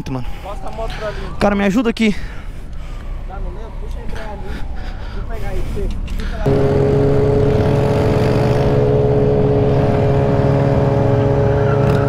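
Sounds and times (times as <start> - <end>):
motorcycle engine cruising: 6.4 - 12.0.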